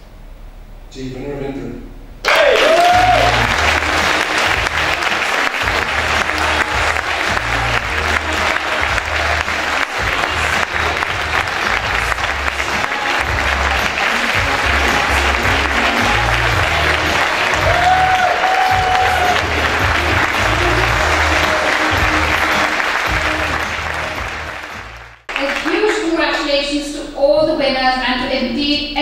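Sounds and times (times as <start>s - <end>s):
audience applauding: 2.2s - 26.4s
music with pulsing bass: 2.8s - 25.2s.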